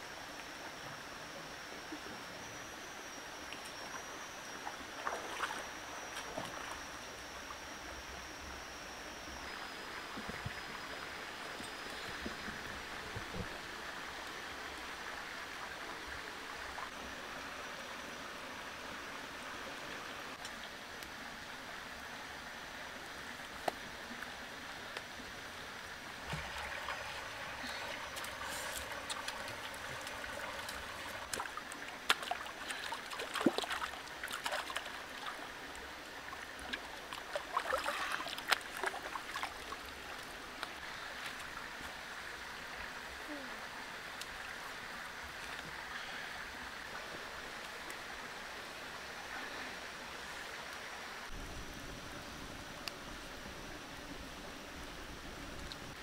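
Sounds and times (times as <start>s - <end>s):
stream flowing over rocks: 9.4s - 51.4s.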